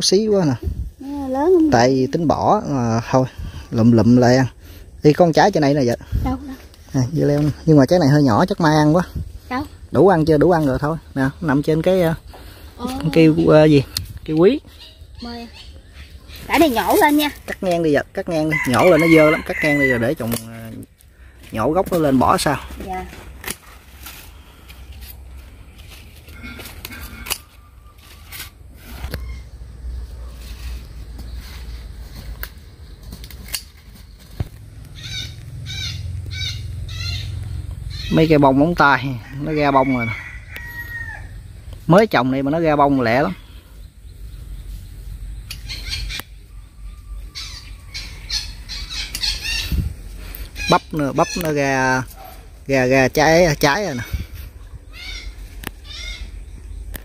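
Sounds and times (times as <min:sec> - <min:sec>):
birds calling: 0:00.0 - 0:57.0
scissors snipping plant stems: 0:20.3 - 0:20.6, 0:33.2 - 0:33.9.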